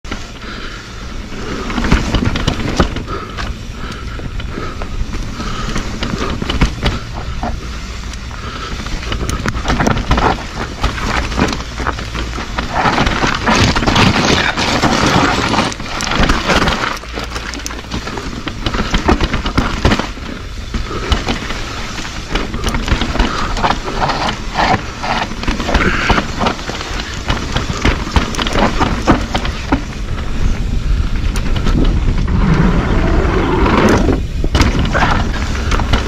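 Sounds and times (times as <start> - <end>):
bike clicking and rattling: 0.0 - 36.0
wind rushing on microphone: 22.4 - 36.0.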